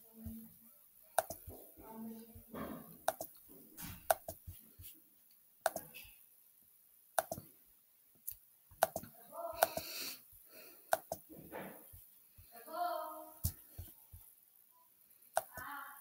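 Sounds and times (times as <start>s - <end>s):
computer mouse clicking: 1.2s - 1.5s, 3.0s - 3.4s, 4.0s - 4.5s, 5.6s - 6.0s, 7.2s - 7.4s, 8.3s - 9.9s, 10.9s - 11.2s, 15.3s - 15.7s.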